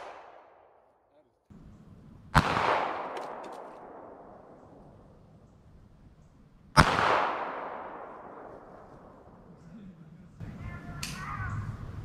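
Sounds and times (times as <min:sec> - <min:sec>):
pistol shot echoing: 0:00.0 - 0:00.9, 0:02.3 - 0:05.2, 0:06.7 - 0:09.4.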